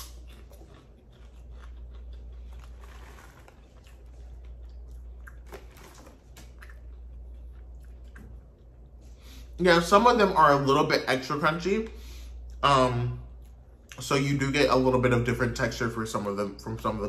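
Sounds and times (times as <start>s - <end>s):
person chewing crunchy popcorn: 0.0s - 9.0s.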